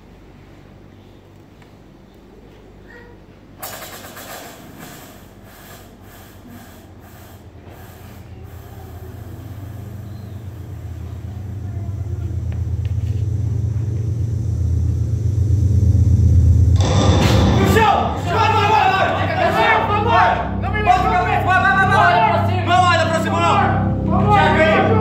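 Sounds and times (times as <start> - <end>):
low rumble: 8.4 - 25.0.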